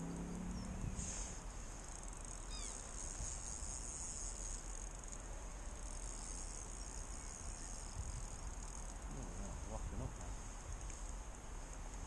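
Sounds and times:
high-pitched hiss: 0.0s - 12.0s
falling bird chirp: 2.4s - 2.9s.

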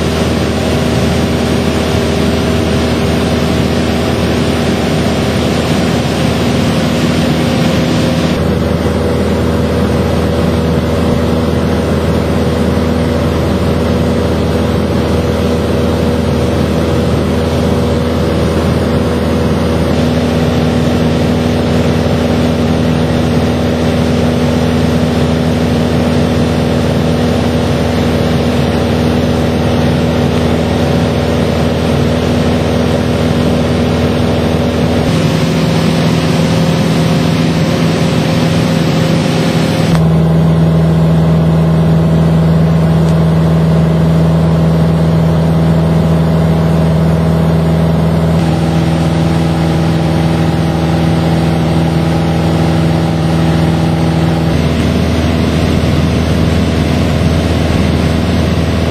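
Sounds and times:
light airplane engine drone: 0.0s - 58.9s.

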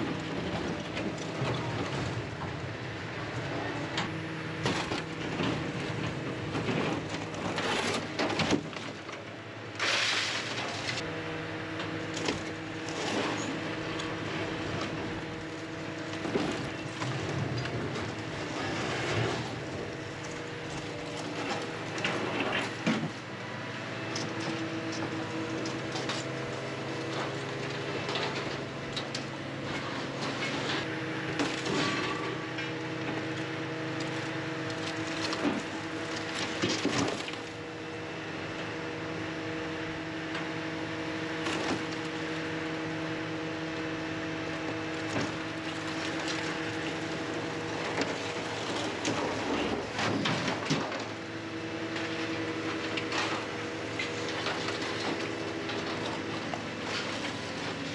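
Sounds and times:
diesel engine and hydraulics: 0.0s - 57.9s
metal clanking and scraping: 27.1s - 37.4s.

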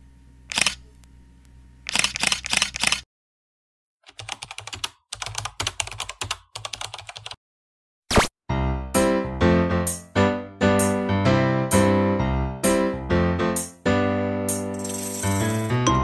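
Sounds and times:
keyboard typing clicks: 1.9s - 3.0s, 4.1s - 7.4s.

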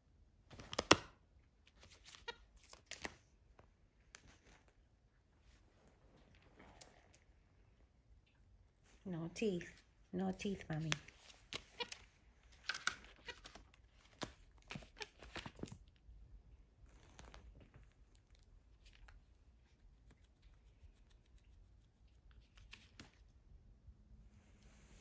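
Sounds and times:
paper crackling and rustling: 1.7s - 4.8s.

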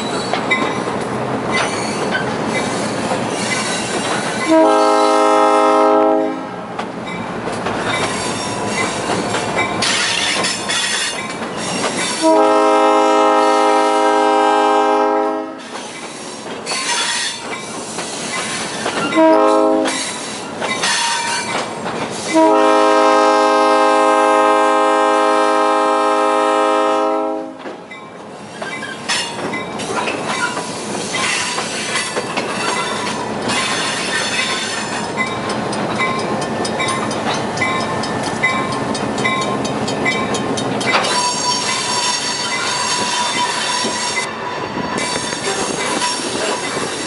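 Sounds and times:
train wheel squeal: 0.0s - 5.2s, 7.0s - 12.4s, 15.6s - 22.5s, 27.9s - 47.0s
train rumbling: 0.0s - 47.0s
locomotive air horn blasts: 4.4s - 6.5s, 12.2s - 15.6s, 19.2s - 20.0s, 22.3s - 27.6s.

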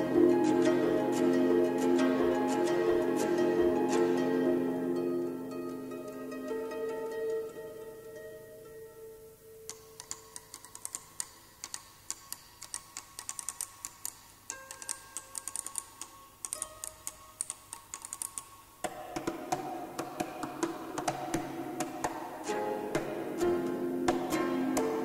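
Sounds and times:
harp notes ringing: 0.0s - 9.7s
low plucked harp notes: 0.0s - 9.7s, 18.9s - 25.0s.

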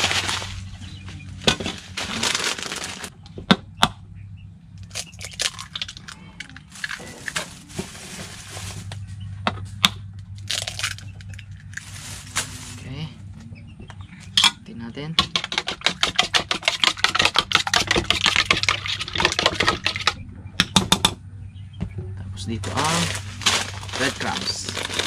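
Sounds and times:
plastic packet crinkling: 1.9s - 3.1s, 4.8s - 9.0s, 10.4s - 12.9s, 22.6s - 25.0s.

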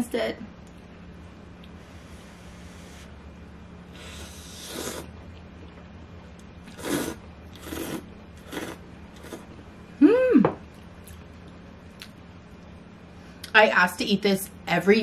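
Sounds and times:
noodles being slurped: 4.2s - 5.1s, 6.7s - 9.5s.

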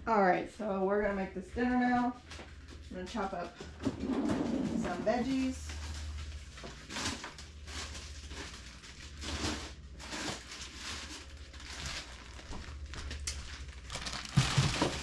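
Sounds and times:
low steady hum: 0.0s - 15.0s
packaging rustling and crinkling: 5.2s - 15.0s.

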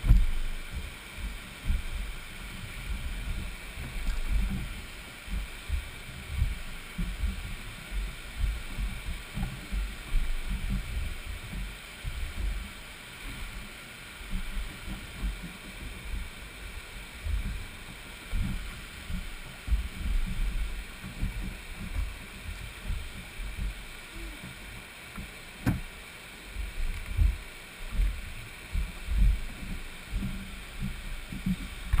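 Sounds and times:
wind buffeting microphone: 0.0s - 24.7s
water slapping against hull: 0.0s - 32.0s.

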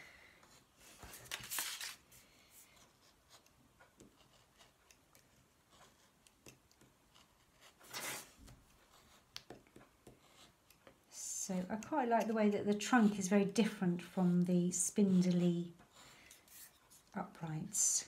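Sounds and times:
craft knife cutting paper: 3.2s - 10.8s.

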